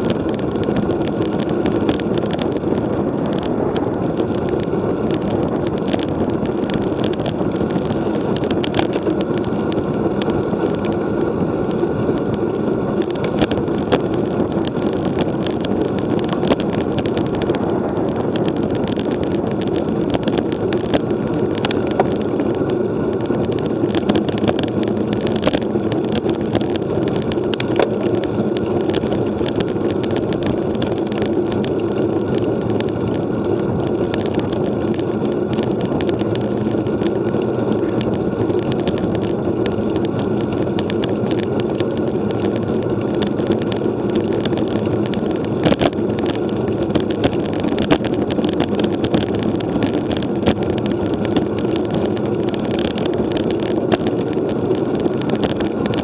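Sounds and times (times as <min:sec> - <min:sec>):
bike tyre and road noise: 0:00.0 - 0:56.0
wind on microphone: 0:00.0 - 0:56.0
small ticks and rattles: 0:12.2 - 0:56.0.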